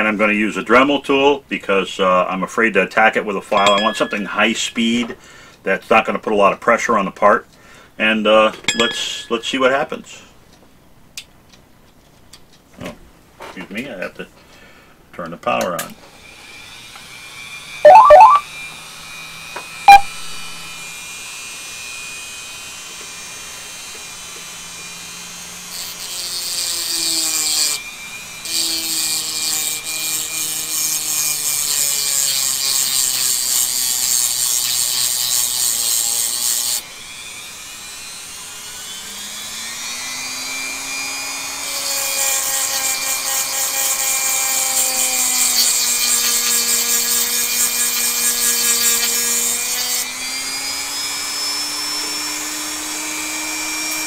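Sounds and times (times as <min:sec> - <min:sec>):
rotary tool grinding steel: 0:25.4 - 0:27.8, 0:28.4 - 0:36.8, 0:41.4 - 0:54.0
rotary tool motor running free: 0:41.8 - 0:50.0.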